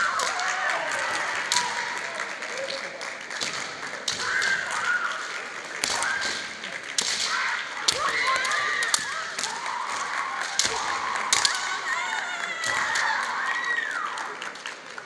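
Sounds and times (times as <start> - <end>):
bamboo swords clashing: 3.4 - 5.1, 5.8 - 11.7.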